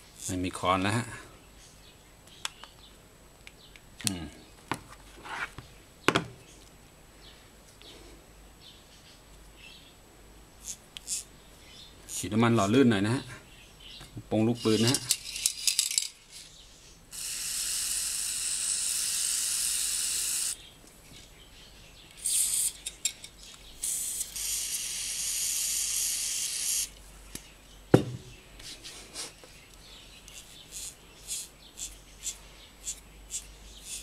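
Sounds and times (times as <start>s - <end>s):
sharp knock: 28.0s - 28.3s.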